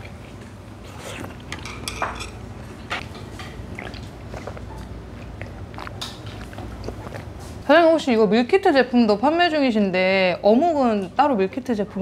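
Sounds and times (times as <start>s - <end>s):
person chewing: 3.4s - 7.6s.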